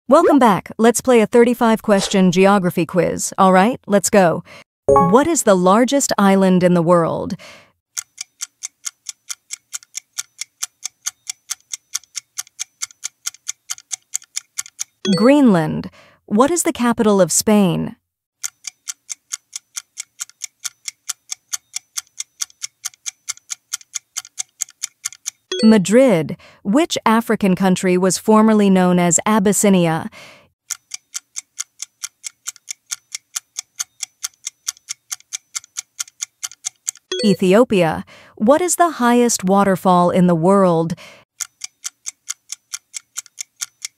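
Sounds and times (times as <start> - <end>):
clock ticking evenly: 7.3 - 15.6, 18.4 - 26.6, 30.6 - 39.4, 40.9 - 43.9.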